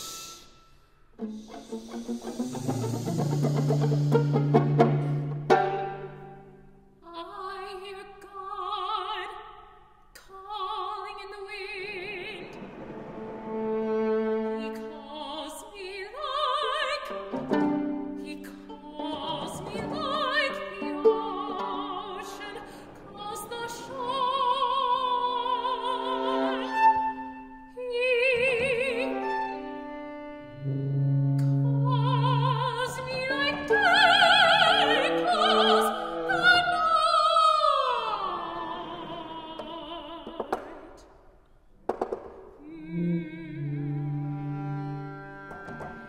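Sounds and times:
sustained low viola and tuba notes: 1.2 - 6.5, 29.0 - 33.8, 42.9 - 46.0
person singing with wide vibrato: 14.3 - 29.8, 31.5 - 41.1, 42.6 - 45.2.

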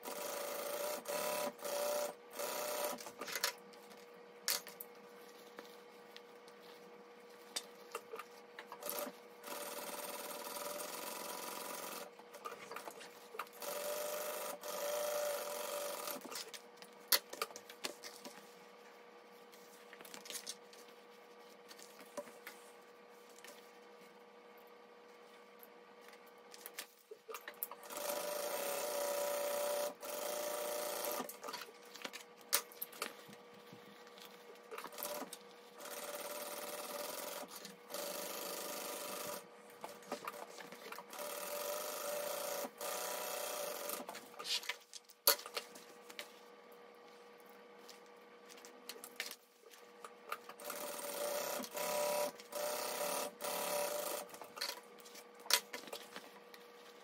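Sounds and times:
sewing machine stitching: 0.0 - 3.4, 8.8 - 16.4, 27.3 - 31.7, 34.7 - 44.4, 50.3 - 54.8.

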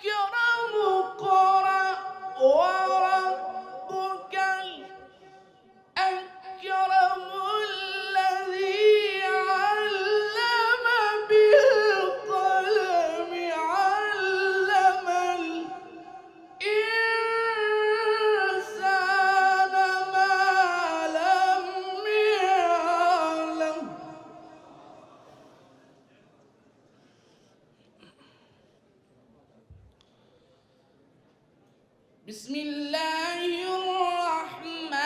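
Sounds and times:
person chanting verses: 0.0 - 25.5.

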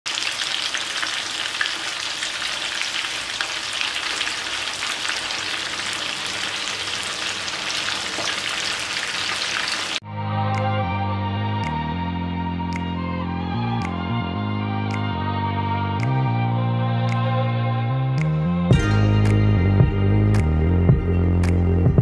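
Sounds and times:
chicken deep-frying sizzle: 0.1 - 10.0
music: 10.0 - 22.0.

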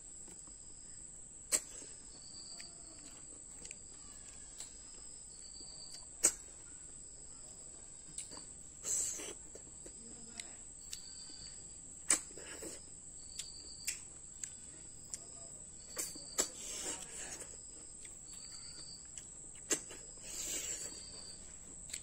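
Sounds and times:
insect drone: 0.0 - 21.7
insect chirps: 0.0 - 22.0
slurping snails from shells: 19.6 - 21.4.

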